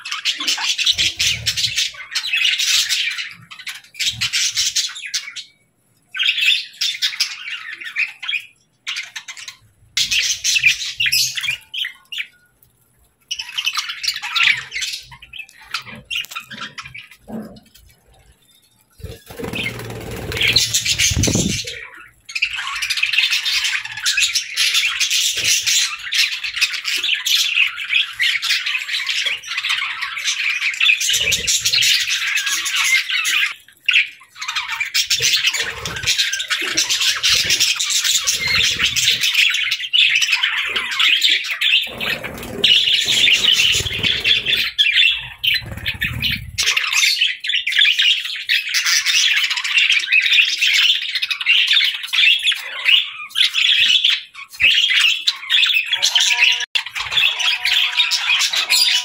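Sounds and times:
budgerigars chattering and chirping: 19.0 - 59.0.

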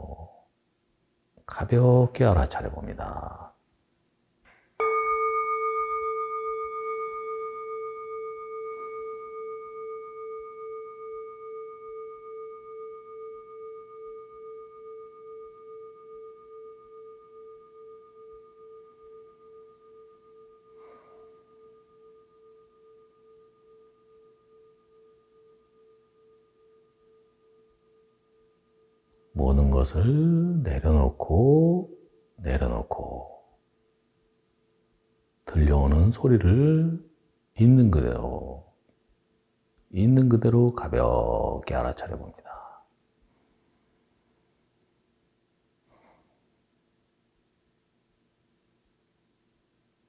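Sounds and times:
singing bowl ringing: 4.8 - 37.3.

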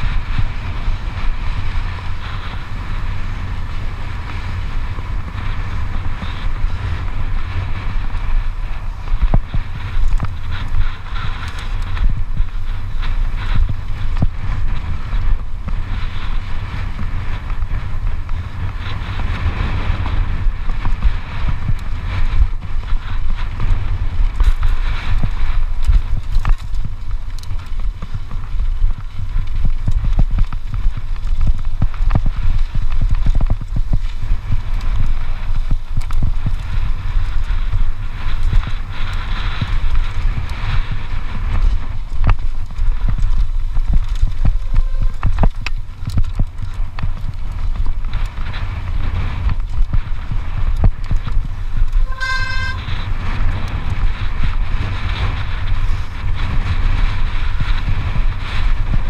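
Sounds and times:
mountain bike rattling: 0.0 - 59.0
wind buffeting microphone: 0.0 - 59.0.

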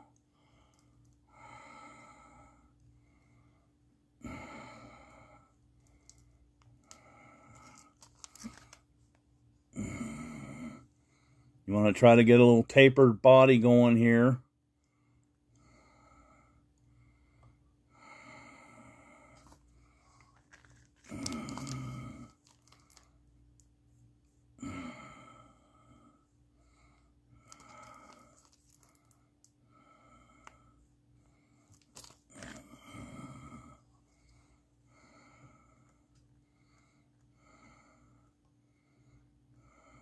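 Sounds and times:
breathing through the nose: 24.6 - 40.0.

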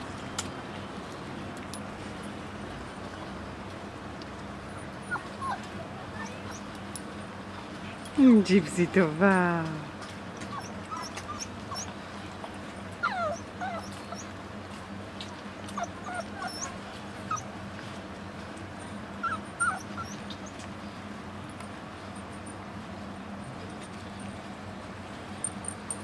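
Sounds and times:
puppies whimpering: 4.5 - 6.9, 10.4 - 14.5, 15.1 - 17.6, 19.2 - 20.7.

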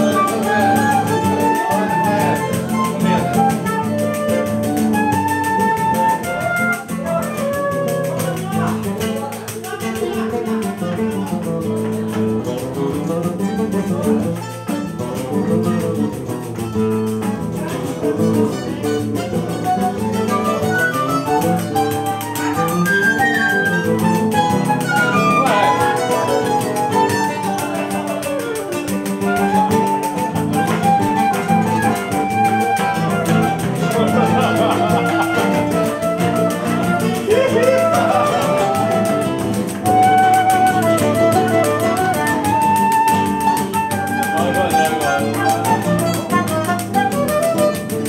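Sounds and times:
flute melody: 0.0 - 9.3, 15.2 - 48.0
cavaquinho: 0.0 - 48.0
plucked acoustic guitar: 0.0 - 48.0.

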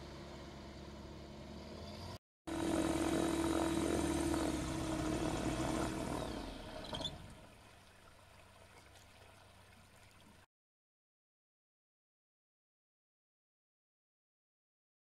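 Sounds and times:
propeller plane engine running: 0.0 - 7.9.

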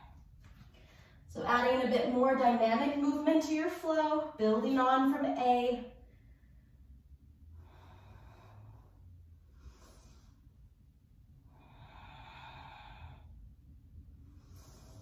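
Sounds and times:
person breathing deeply: 6.1 - 10.7, 11.4 - 13.6, 14.2 - 15.0.

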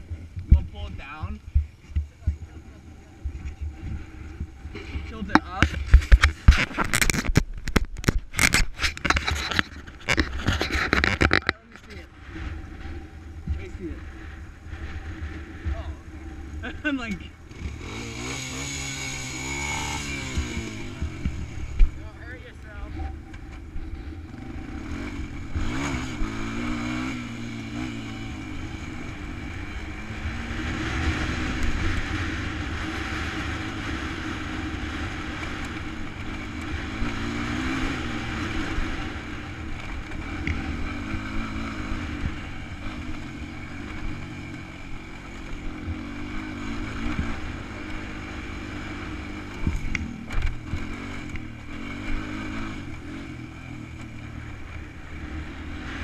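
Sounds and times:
atv engine revving: 0.0 - 56.0.

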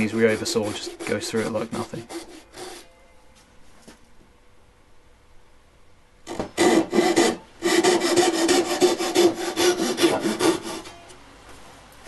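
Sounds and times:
hand saw cutting wood: 0.0 - 2.8, 6.3 - 10.9.

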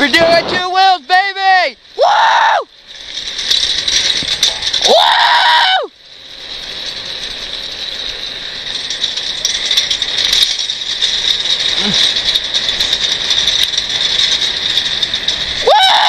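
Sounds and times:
wheels rolling over asphalt: 0.0 - 16.0
rattling clicks: 2.7 - 5.1, 5.9 - 15.8.

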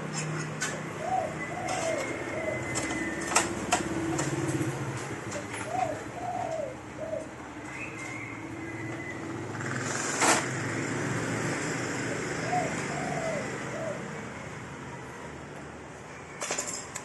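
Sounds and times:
dove cooing: 0.1 - 9.8, 12.0 - 15.3.

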